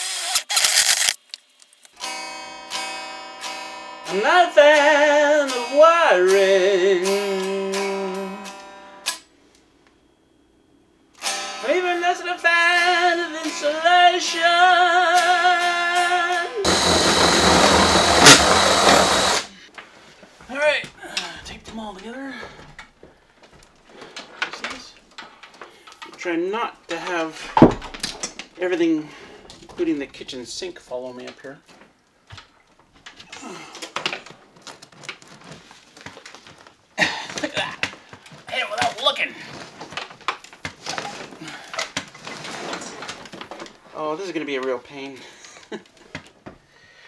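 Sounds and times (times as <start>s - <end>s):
electric guitar strumming: 2.0s - 9.2s
man singing with vibrato: 4.0s - 8.6s, 11.6s - 17.1s
loud harsh noise: 16.6s - 19.5s
cables rustling and scraping: 21.2s - 26.3s, 29.4s - 46.5s.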